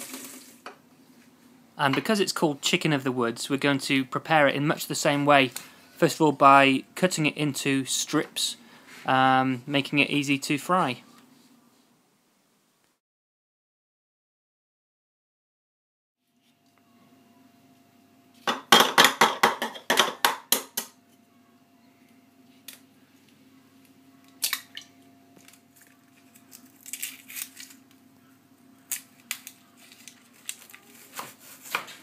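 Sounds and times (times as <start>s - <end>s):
egg cracking on bowl rim: 24.2s - 27.8s
knife cutting onion: 31.0s - 32.0s.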